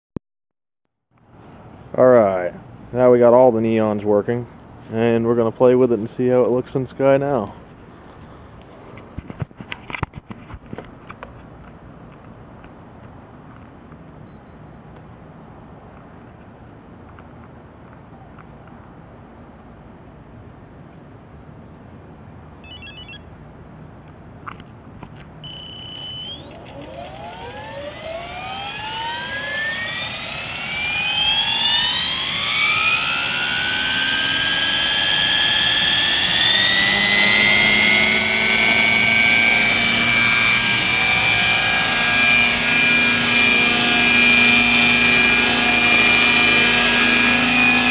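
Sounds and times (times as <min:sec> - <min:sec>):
brief tone: 0:22.6 - 0:23.2, 0:25.4 - 0:27.9
helicopter motor and rotor whine: 0:22.6 - 0:23.2, 0:25.4 - 0:47.9
short electronic beeps: 0:22.6 - 0:23.2, 0:25.4 - 0:26.8.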